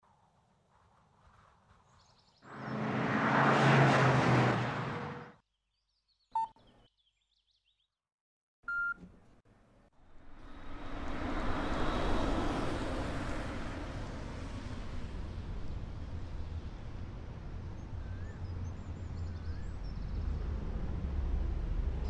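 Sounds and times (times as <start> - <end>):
smartphone beeps: 6.4 - 6.6, 8.7 - 9.0
rush of noise with low hum: 10.0 - 22.0.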